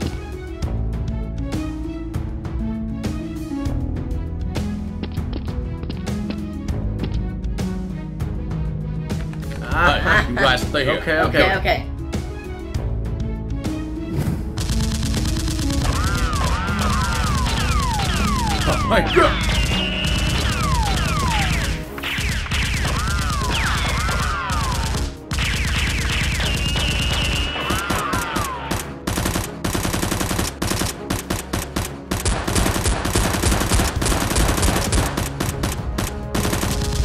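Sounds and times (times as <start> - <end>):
rapid automatic gunfire: 14.6 - 37.0.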